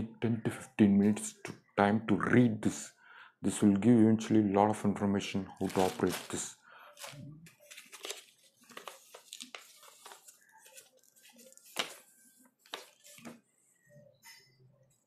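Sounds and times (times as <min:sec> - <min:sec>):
paper crackling and rustling: 0:05.6 - 0:13.4.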